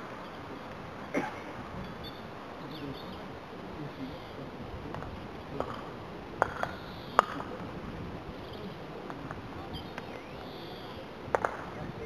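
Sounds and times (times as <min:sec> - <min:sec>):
outdoor background noise: 0:00.0 - 0:12.0
faint high bird chirps: 0:01.8 - 0:03.3, 0:09.6 - 0:11.0.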